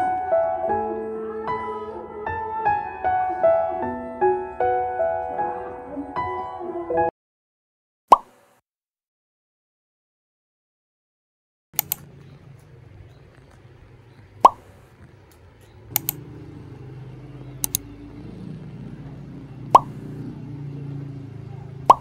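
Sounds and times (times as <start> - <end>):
quick clicks: 11.8 - 13.7, 14.3 - 16.3, 17.6 - 17.9
soft low hum: 11.8 - 21.9.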